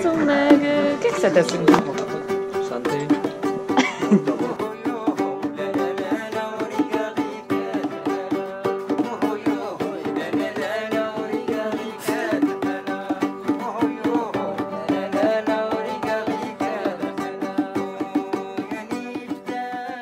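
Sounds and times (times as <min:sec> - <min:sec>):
acoustic guitar tune: 0:00.0 - 0:20.0
percussive beat: 0:00.0 - 0:20.0.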